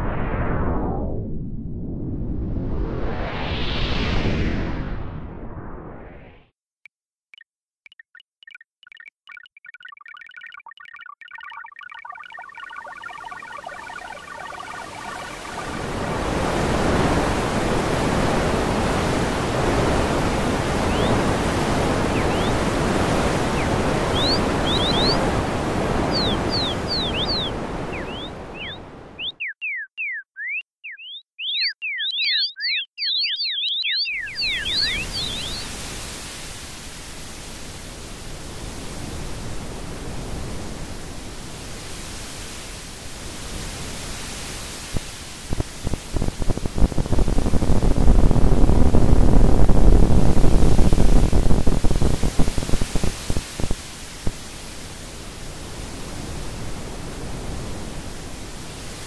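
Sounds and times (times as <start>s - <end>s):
chirping tones sliding up and down: 7.3s - 16.5s, 20.8s - 25.4s, 26.0s - 35.7s
steady wash of noise: 13.6s - 29.2s, 34.5s - 59.0s.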